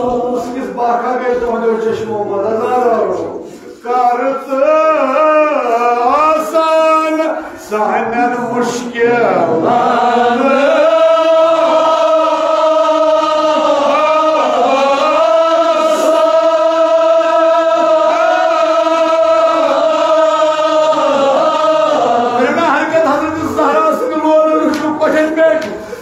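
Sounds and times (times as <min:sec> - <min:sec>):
men chanting a lament: 0:00.0 - 0:26.0.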